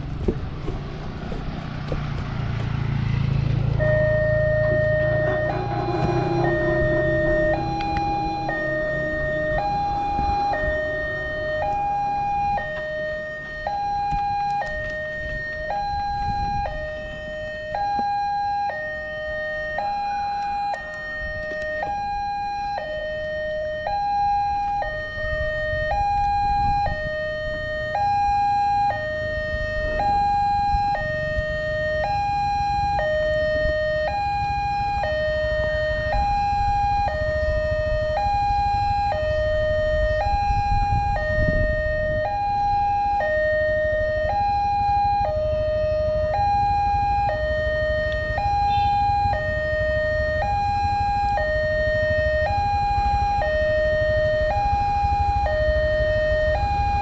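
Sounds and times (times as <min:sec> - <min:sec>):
low rumble: 0:00.0 - 0:13.9
two-tone warning siren: 0:00.0 - 0:57.0.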